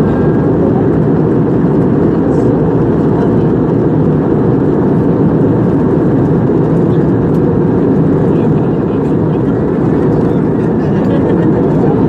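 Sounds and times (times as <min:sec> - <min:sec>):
jet airliner cabin drone: 0:00.0 - 0:12.0.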